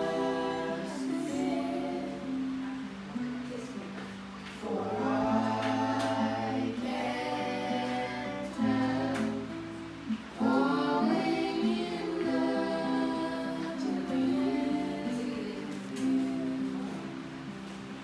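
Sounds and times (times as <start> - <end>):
voices singing together: 0.0 - 3.2, 4.5 - 18.0
acoustic guitar: 0.0 - 18.0.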